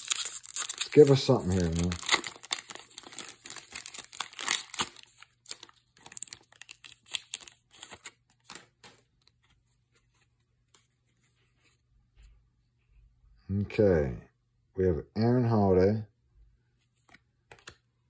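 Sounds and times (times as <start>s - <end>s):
foil pack crinkling: 0.0s - 8.6s.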